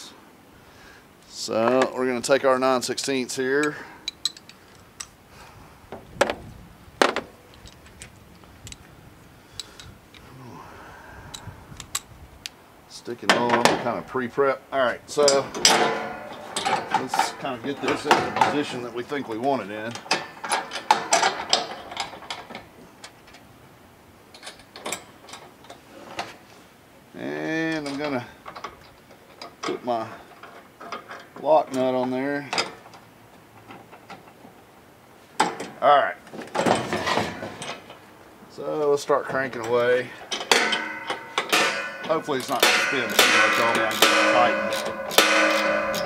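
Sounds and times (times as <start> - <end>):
metal hardware handled against metal: 3.6 - 5.1, 15.1 - 23.2, 39.6 - 46.0
sharp knocks: 40.5 - 46.0.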